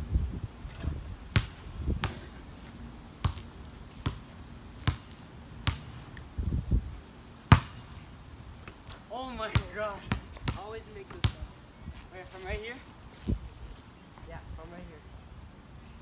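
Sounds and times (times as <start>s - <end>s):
basketball bouncing on outdoor court: 0.8s - 6.2s, 7.5s - 8.0s, 8.6s - 11.6s.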